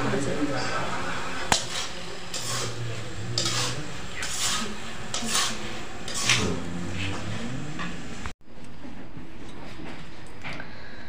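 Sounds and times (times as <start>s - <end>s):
steel spoon scraping plates: 1.5s - 7.4s.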